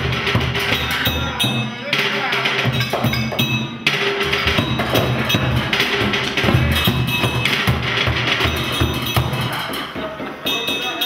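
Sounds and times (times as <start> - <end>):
drum hits: 0.0 - 11.0
wood-block-like knocks: 2.7 - 11.0
sustained pitched notes: 3.6 - 9.7.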